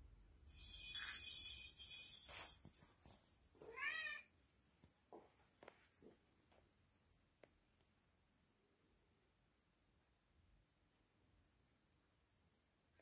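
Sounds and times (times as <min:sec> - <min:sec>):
high jingling rattle: 0:00.5 - 0:03.6
cat meowing: 0:03.6 - 0:04.3.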